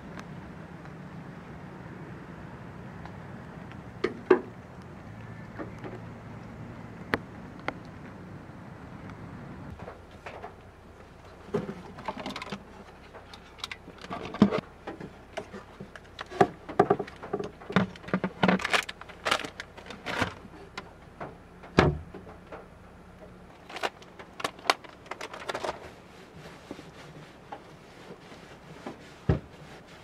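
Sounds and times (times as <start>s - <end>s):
wrapping rustling: 17.9s - 20.4s, 23.6s - 28.8s.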